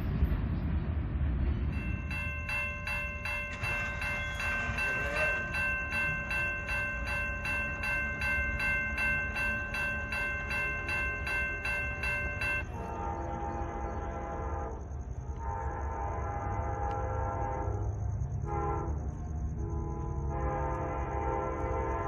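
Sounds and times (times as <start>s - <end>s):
low rumble: 0.0s - 7.8s
railroad crossing bell ringing: 1.7s - 22.0s.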